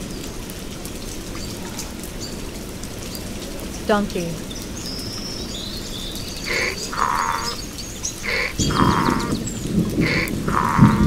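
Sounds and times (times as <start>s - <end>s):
faint bird chirps: 3.7s - 11.0s
donkey braying: 6.5s - 7.6s, 8.2s - 9.4s, 10.0s - 11.0s.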